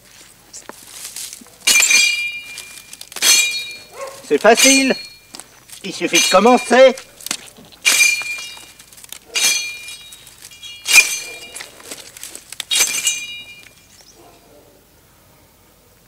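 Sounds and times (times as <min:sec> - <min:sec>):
machete strokes ringing: 0:01.7 - 0:14.0.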